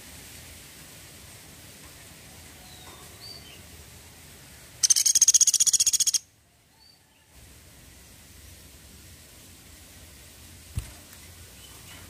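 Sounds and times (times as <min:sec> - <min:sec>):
woodpecker rattling trill: 0:04.8 - 0:06.2.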